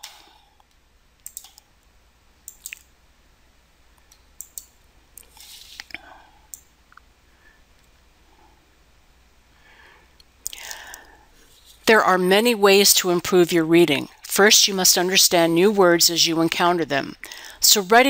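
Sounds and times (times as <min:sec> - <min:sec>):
computer mouse clicks: 0:00.1 - 0:01.7, 0:02.5 - 0:02.9, 0:04.0 - 0:07.0
soft rustle of movement: 0:05.2 - 0:06.0, 0:11.4 - 0:11.9.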